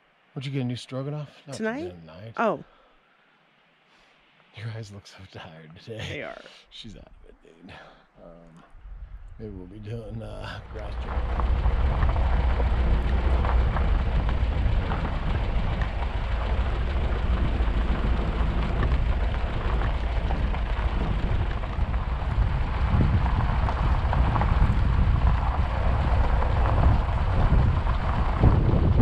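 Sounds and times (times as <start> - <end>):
vehicle engine rumble: 4.6 - 29.0
tyres on gravel road: 10.5 - 29.0.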